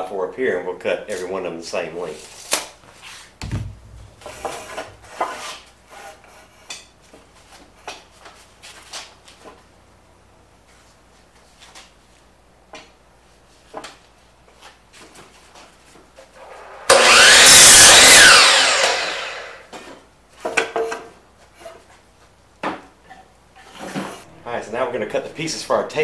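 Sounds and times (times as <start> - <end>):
board knocking: 3.4 - 5.3
miter saw cutting wood: 16.4 - 19.7.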